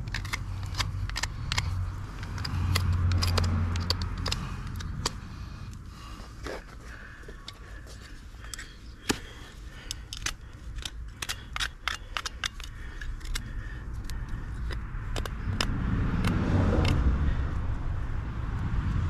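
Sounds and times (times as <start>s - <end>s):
knife clicking and scraping hoof: 0.0s - 17.1s
low rumble: 13.0s - 19.0s.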